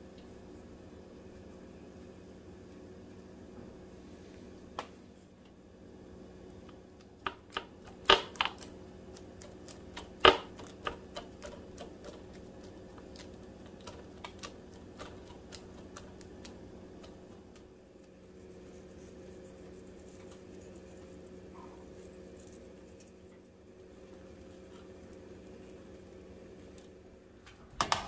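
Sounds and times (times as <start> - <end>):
steady low hum: 0.0 - 28.0
utensils and dishes clicking: 7.2 - 16.2.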